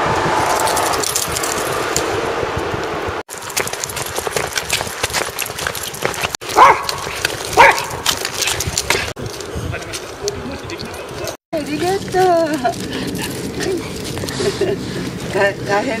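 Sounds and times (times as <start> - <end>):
steady rushing noise: 0.0 - 6.4
small dog barking: 6.5 - 8.1.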